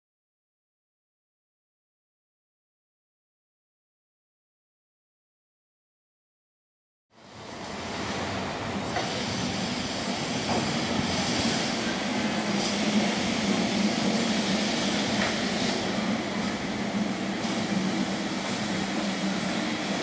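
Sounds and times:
electric tram running hum: 7.2 - 20.0.

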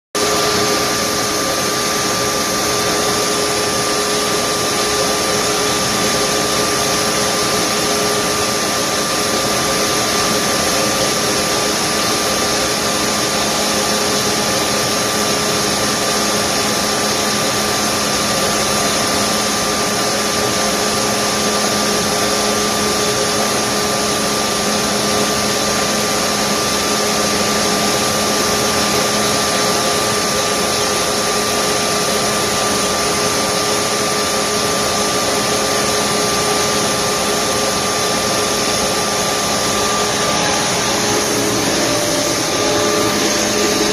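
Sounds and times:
low hum: 37.3 - 43.9.

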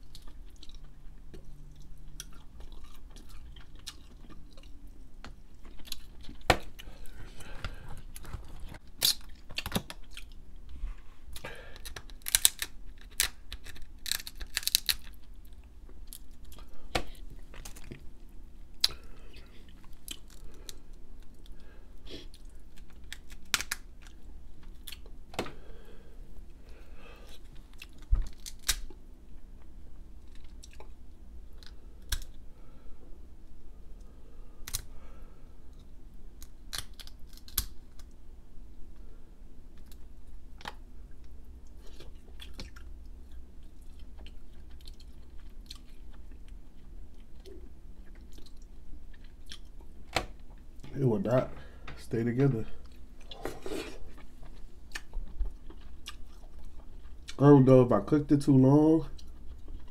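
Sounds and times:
wet chewing: 0.0 - 10.4, 52.8 - 57.4
crab shell cracking: 7.6 - 10.3, 11.7 - 15.3, 22.7 - 25.2, 27.8 - 29.0, 31.6 - 32.4, 34.6 - 34.9, 36.4 - 38.1.

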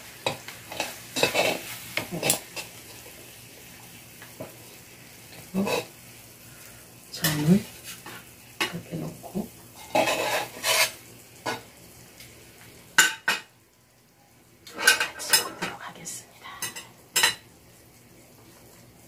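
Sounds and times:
metal spatula scraping griddle: 0.3 - 2.7, 9.8 - 11.6.

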